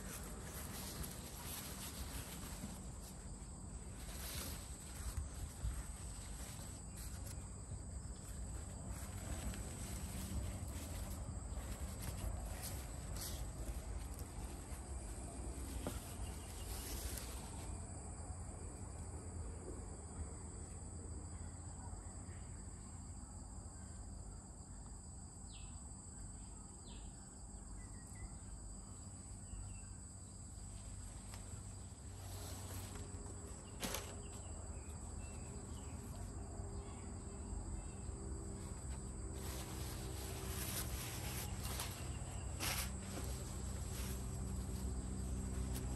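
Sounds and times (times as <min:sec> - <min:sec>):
insects chirping: 0:00.0 - 0:45.9.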